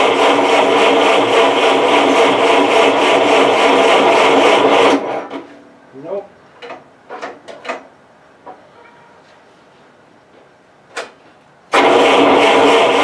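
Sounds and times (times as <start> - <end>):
gas engine running loud: 0.0 - 5.2, 11.8 - 13.0.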